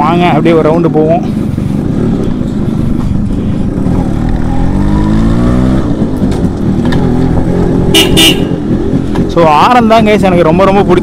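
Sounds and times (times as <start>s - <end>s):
motorbike engine pulling away: 1.8s - 9.7s
electric horn toots: 7.9s - 8.6s.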